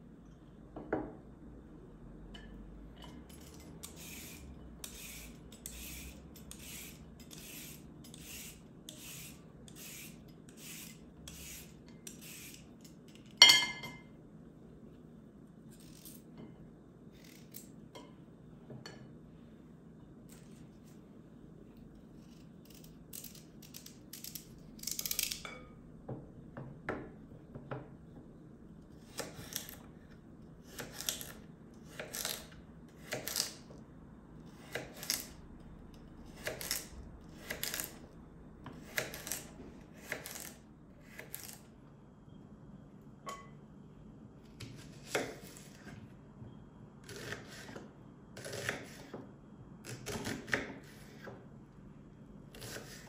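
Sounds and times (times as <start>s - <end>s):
knife chopping on wooden board: 48.4s - 49.2s.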